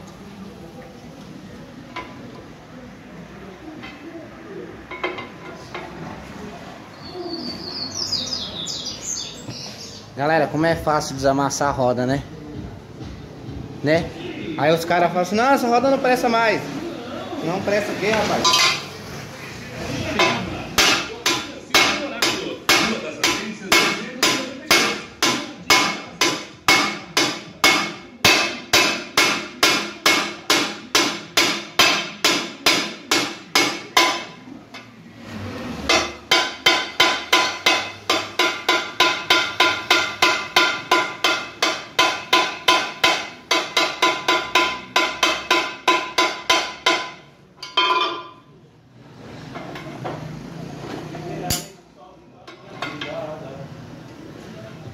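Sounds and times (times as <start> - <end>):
hammer clanging on steel rim: 18.4 - 18.9, 35.9 - 48.4.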